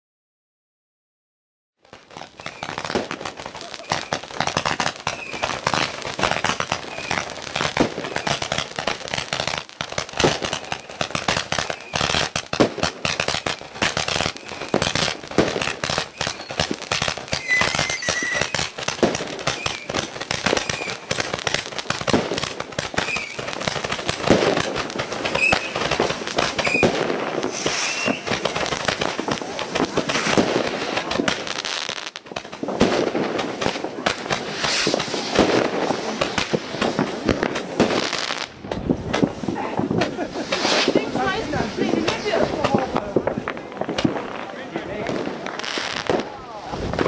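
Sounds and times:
fireworks crackling and banging: 1.8s - 47.0s
high-pitched firework whistles: 2.2s - 8.5s, 10.2s - 12.4s, 13.0s - 21.6s, 22.9s - 23.5s, 25.2s - 29.0s, 34.5s - 37.1s.

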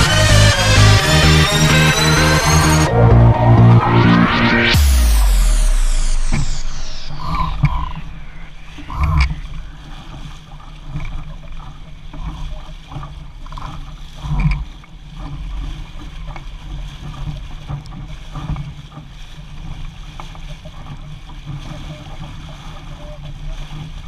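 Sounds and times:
steady low rumble: 0.0s - 13.6s
water rushing along a hull: 0.0s - 24.0s.

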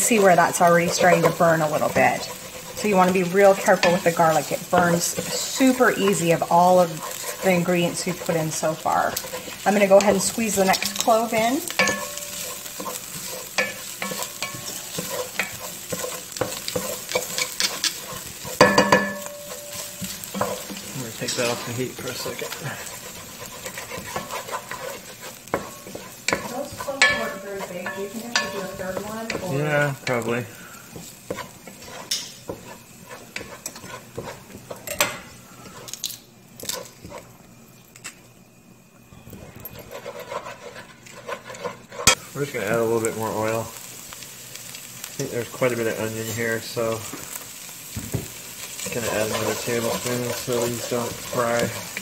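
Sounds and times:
wooden spoon scraping pot: 0.0s - 35.9s, 39.4s - 42.8s, 48.1s - 52.0s
food sizzling in oil: 0.0s - 52.0s
utensils knocking against pot: 10.0s - 13.0s, 13.6s - 20.8s, 25.5s - 29.5s
ringing knock on pot: 18.6s - 19.4s.

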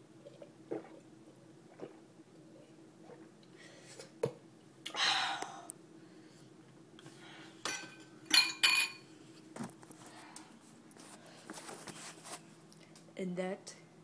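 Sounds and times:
glass clinks: 7.7s - 9.0s.

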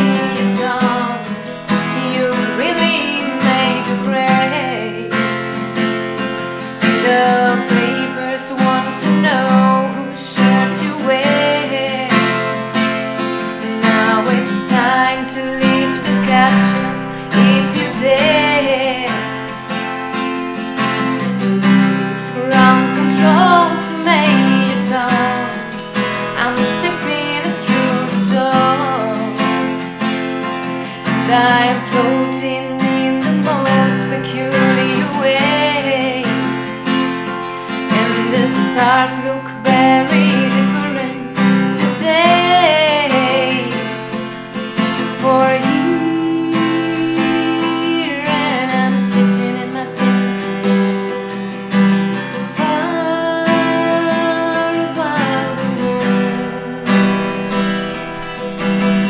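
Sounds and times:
acoustic guitar: 0.0s - 59.0s
woman singing: 0.0s - 59.0s.

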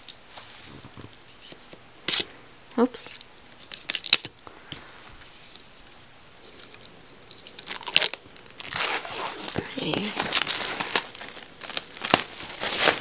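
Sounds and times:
paper packaging rustling: 6.4s - 13.0s.

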